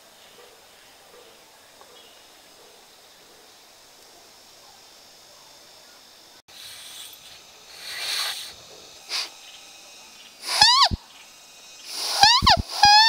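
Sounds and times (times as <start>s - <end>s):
airy breath puffs: 6.5s - 9.4s, 10.4s - 11.0s, 11.8s - 13.0s
reedy squeal: 6.5s - 9.4s, 10.4s - 11.0s, 11.8s - 13.0s.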